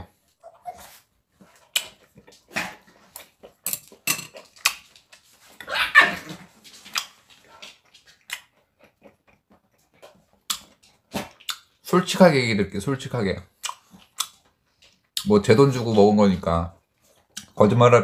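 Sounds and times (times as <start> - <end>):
close-miked chewing: 1.4 - 11.9, 13.5 - 16.1, 16.8 - 17.6.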